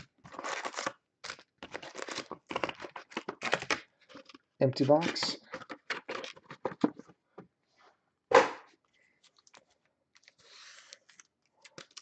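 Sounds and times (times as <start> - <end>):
loud slap: 8.3 - 8.7.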